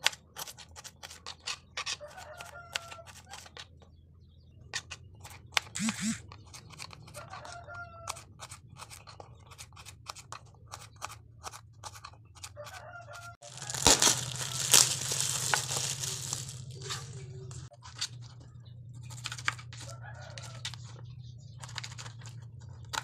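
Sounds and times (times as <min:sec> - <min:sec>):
plastic bag crinkling: 0:13.4 - 0:17.7.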